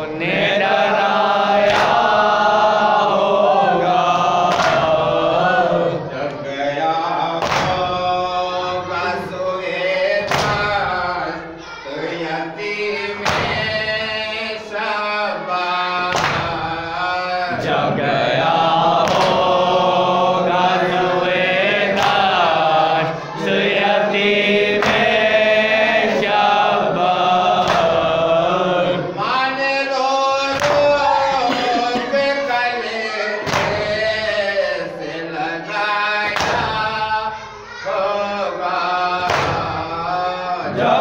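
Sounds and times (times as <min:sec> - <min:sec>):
men chanting together: 0:00.0 - 0:41.0
hands slapping chests: 0:01.6 - 0:02.1, 0:04.5 - 0:05.0, 0:07.4 - 0:07.9, 0:10.3 - 0:10.7, 0:16.1 - 0:16.6, 0:19.0 - 0:19.5, 0:24.8 - 0:25.1, 0:27.6 - 0:28.0, 0:30.5 - 0:30.9, 0:39.2 - 0:39.7.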